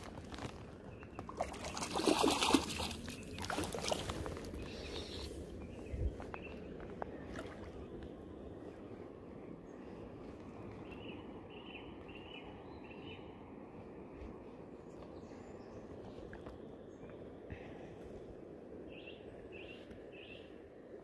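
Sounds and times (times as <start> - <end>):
splashing in shallow water: 0.0 - 5.4, 7.1 - 7.9
river murmur: 0.4 - 5.8, 6.4 - 10.2.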